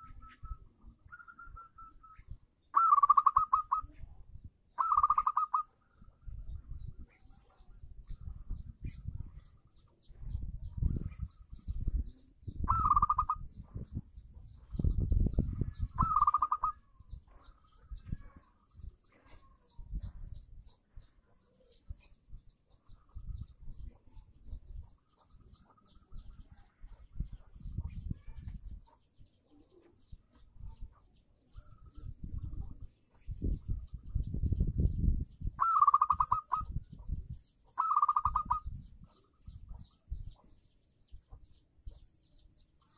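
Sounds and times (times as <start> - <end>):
small birds chirping: 0.0 - 42.9
dove cooing: 2.8 - 3.9, 4.8 - 5.7, 12.6 - 13.4, 15.9 - 16.9, 35.6 - 36.7, 37.8 - 38.6.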